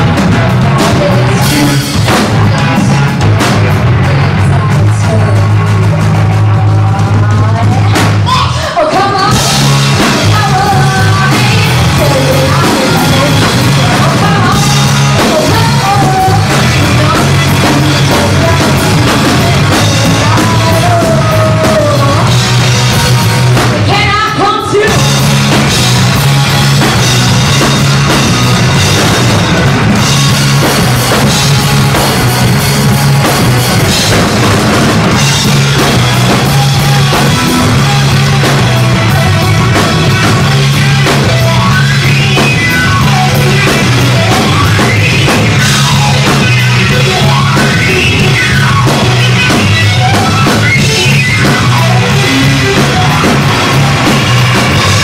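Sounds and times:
rock band playing: 0.0 - 55.0
woman singing: 0.6 - 25.1.

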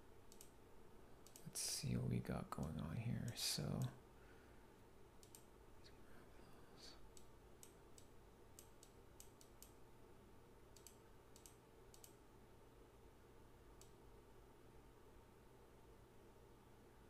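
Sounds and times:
low room hum: 0.0 - 17.0
computer mouse clicks: 0.3 - 0.6, 1.2 - 1.5, 5.2 - 5.5, 7.1 - 9.8, 10.7 - 12.2, 13.8 - 14.0.

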